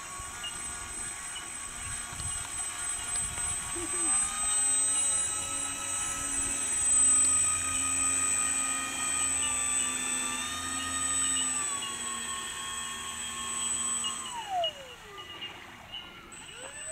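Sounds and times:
model plane electric motors whining: 0.0 - 16.9.

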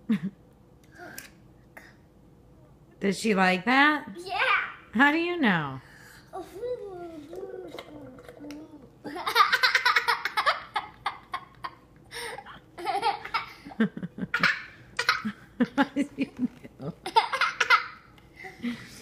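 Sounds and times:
young child laughing: 7.8 - 18.8.

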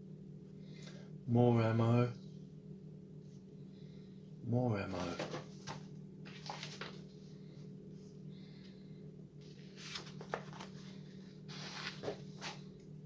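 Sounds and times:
steady low hum: 0.0 - 13.0
paper pages rustling: 4.9 - 7.2, 9.4 - 12.7.

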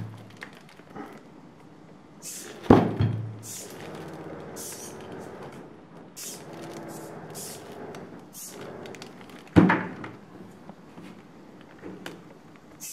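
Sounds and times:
machine hum: 0.0 - 12.9
valve hissing bursts: 2.2 - 2.7, 3.4 - 3.9, 4.6 - 5.0, 6.2 - 8.8.

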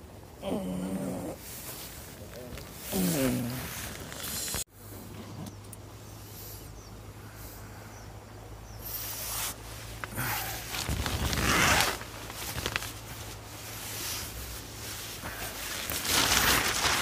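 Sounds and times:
tent zipper rasping: 0.8 - 4.6, 8.9 - 17.0
nylon fabric rustling: 1.0 - 4.7, 9.0 - 17.0.

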